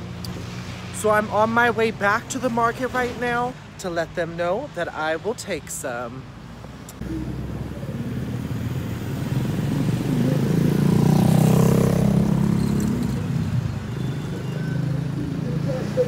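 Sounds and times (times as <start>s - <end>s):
street traffic: 0.0s - 16.0s
motorbikes passing: 6.7s - 16.0s.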